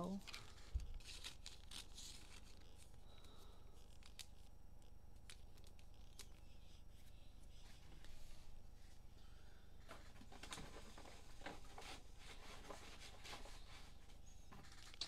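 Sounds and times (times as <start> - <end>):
trading cards rustling: 0.1 - 8.2, 9.8 - 15.0
cellophane card packs opened: 0.2 - 4.5.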